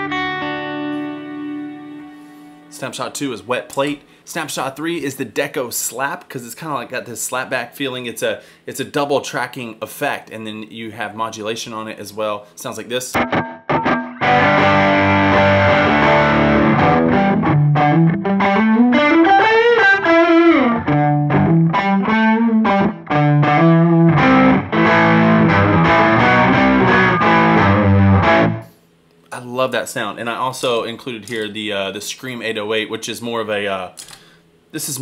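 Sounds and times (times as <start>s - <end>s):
electric guitar strumming chords: 0.0s - 2.8s, 13.2s - 28.7s.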